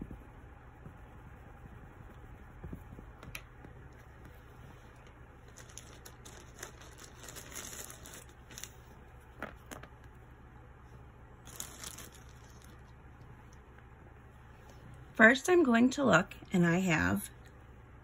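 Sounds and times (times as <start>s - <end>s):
hand rustling on whiteboard: 0.0s - 10.2s
low steady hum: 0.0s - 18.0s.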